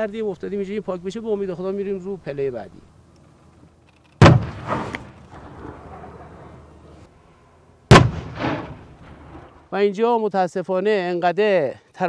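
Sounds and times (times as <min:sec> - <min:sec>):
loud explosions with rumbling echo: 0:04.2 - 0:06.3, 0:07.9 - 0:09.7.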